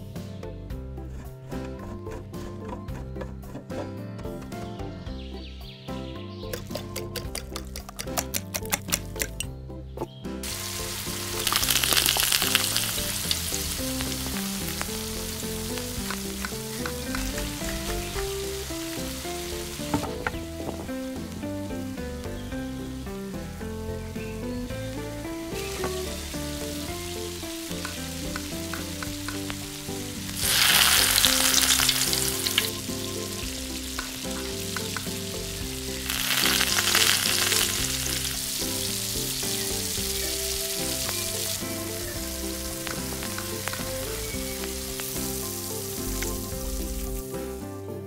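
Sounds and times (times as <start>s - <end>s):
food sizzling in hot oil: 10.4s - 21.4s, 24.9s - 47.3s.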